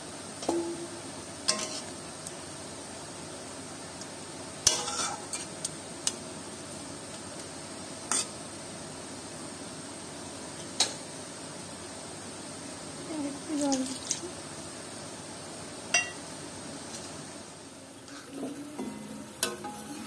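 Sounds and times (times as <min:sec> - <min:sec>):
metal spatula scraping a wok: 0:01.5 - 0:01.9, 0:04.7 - 0:05.5.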